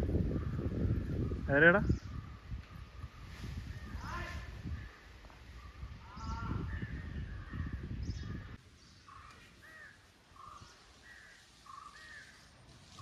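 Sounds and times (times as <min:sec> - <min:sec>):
crows cawing: 0:09.1 - 0:12.5.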